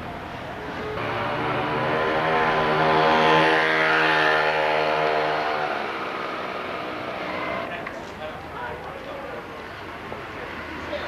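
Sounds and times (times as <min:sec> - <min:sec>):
electric tram motors droning: 0:00.0 - 0:07.7.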